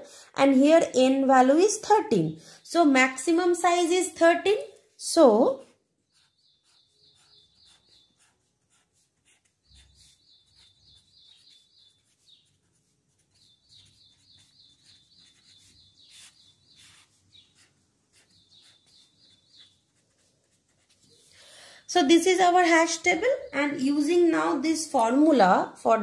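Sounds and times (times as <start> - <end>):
pen scratching on paper: 5.6 - 21.3.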